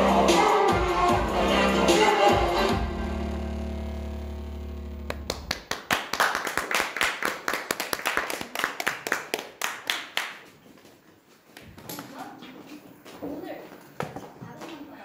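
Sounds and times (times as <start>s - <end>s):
dance music: 0.0s - 5.5s
small group clapping: 5.0s - 10.9s.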